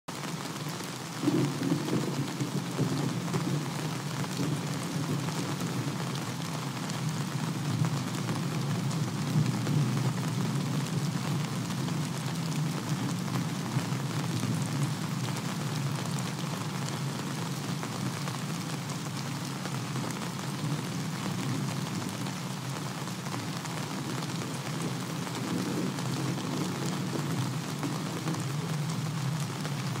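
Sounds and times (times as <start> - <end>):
steady rain hissing: 0.1 - 30.0
thunder rumbling: 1.2 - 6.2, 23.8 - 30.0.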